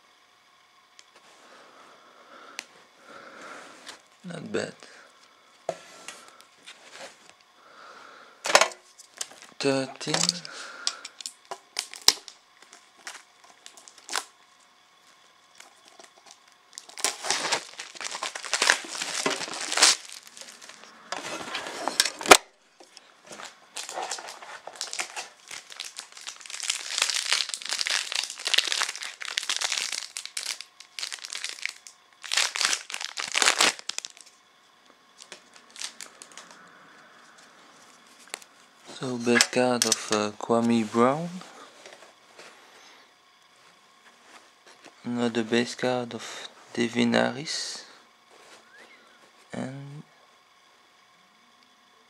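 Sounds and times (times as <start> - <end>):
plastic wrapping crinkling and tearing: 9.0 - 14.3, 15.6 - 22.4, 23.3 - 34.4, 35.2 - 36.6.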